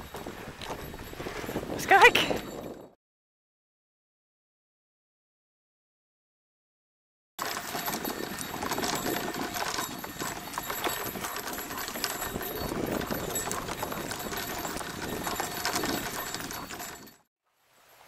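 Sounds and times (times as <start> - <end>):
wheels and paws on dry leaves: 0.0 - 2.3, 7.4 - 17.1.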